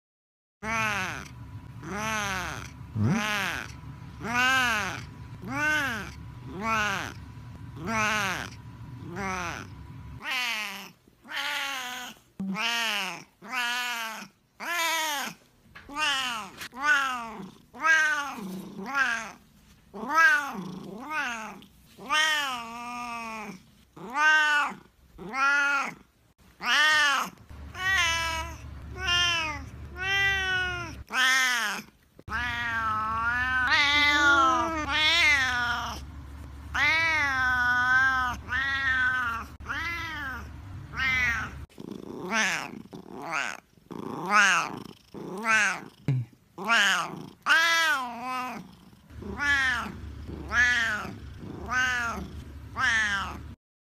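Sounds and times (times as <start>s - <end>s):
cat meowing and yowling: 1.8s - 7.2s, 20.0s - 26.0s, 26.6s - 36.0s, 36.8s - 41.6s, 46.6s - 48.6s, 49.2s - 53.5s.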